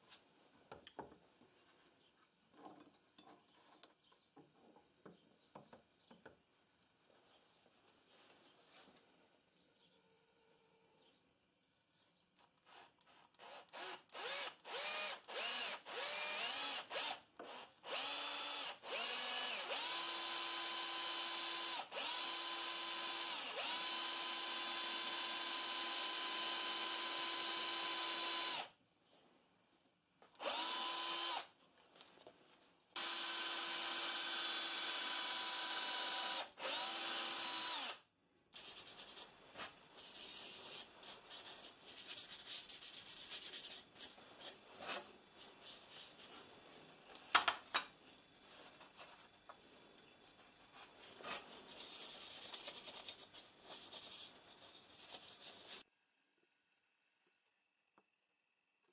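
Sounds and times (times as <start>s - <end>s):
cordless drill whining: 12.6s - 28.7s, 30.4s - 31.5s, 33.0s - 38.0s.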